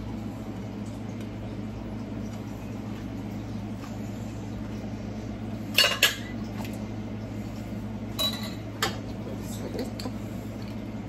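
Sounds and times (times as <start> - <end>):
steady low hum: 0.0 - 11.0
kitchenware clinking: 5.7 - 6.4, 8.2 - 9.0.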